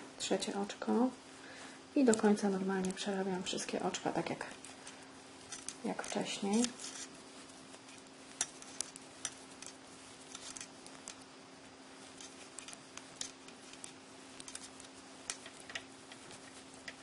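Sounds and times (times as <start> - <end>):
metal knitting needles clicking: 8.3 - 11.2, 12.1 - 17.0.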